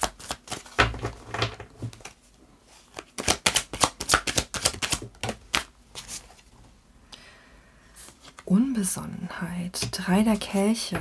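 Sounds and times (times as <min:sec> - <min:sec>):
cards being shuffled: 0:00.0 - 0:00.8, 0:02.8 - 0:06.4.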